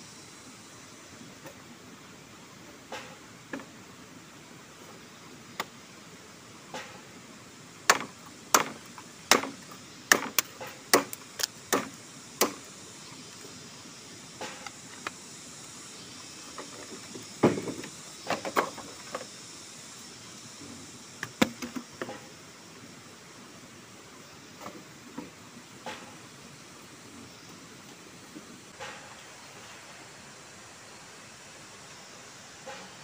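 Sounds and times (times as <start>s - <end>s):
faint hiss: 0.0s - 33.0s
machete chopping bamboo: 7.8s - 12.6s.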